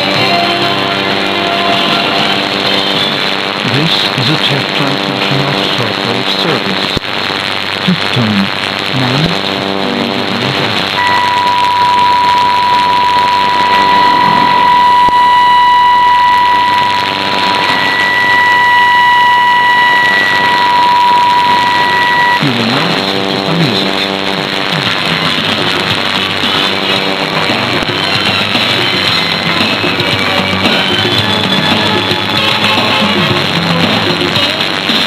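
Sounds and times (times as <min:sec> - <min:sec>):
music: 0:00.0 - 0:08.0, 0:08.6 - 0:35.0
radio static hiss: 0:00.0 - 0:35.0
steady test tone: 0:07.9 - 0:34.5.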